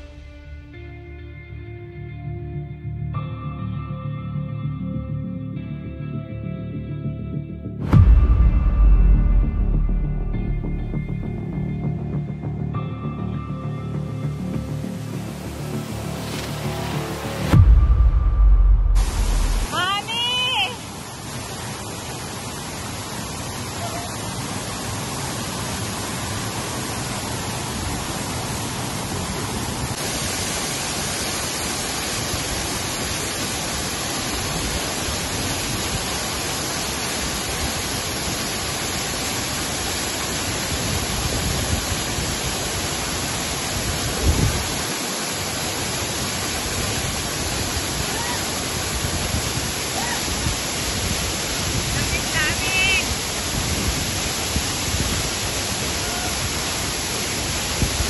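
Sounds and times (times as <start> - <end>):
stream and waterfall rushing: 0.0 - 3.6, 7.8 - 58.0
low thump: 7.9 - 11.0, 17.5 - 19.7.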